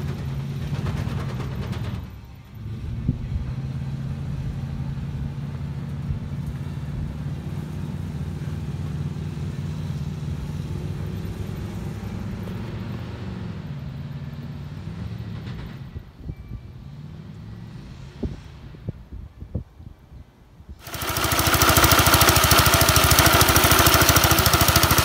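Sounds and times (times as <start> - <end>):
vehicle engine running: 0.0 - 13.6, 20.8 - 25.0.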